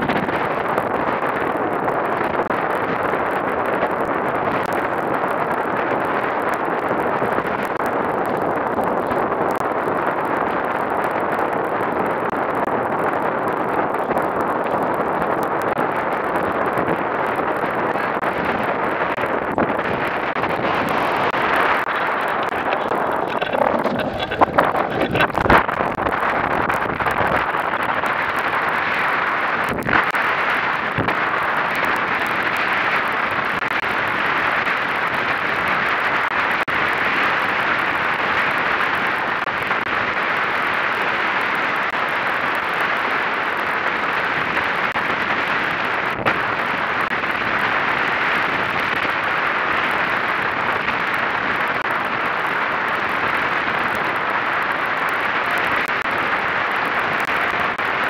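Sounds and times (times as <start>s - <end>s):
wind rushing: 0.0s - 35.1s.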